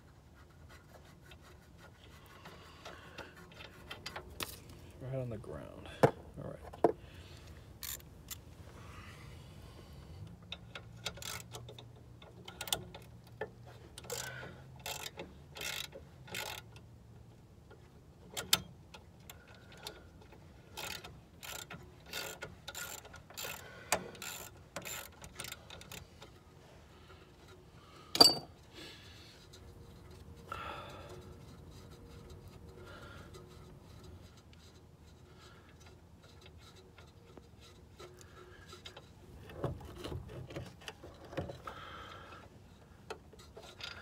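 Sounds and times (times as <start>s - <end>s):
hand tools clicking on metal: 18.3s - 26.4s
sharp metal clank: 28.2s - 28.5s.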